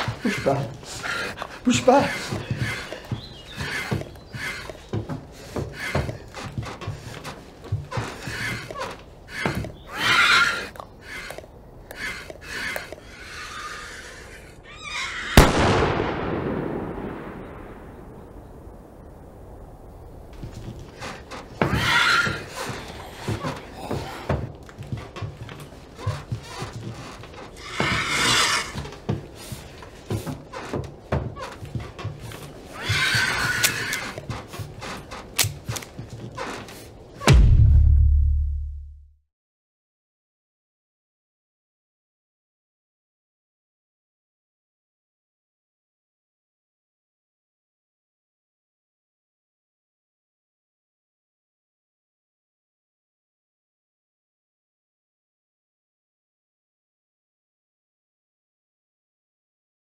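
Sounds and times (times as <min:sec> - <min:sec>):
creature screech: 0:09.9 - 0:10.7, 0:13.2 - 0:15.4, 0:21.7 - 0:22.4, 0:27.6 - 0:28.8
pistol shot with echo: 0:15.4 - 0:18.1.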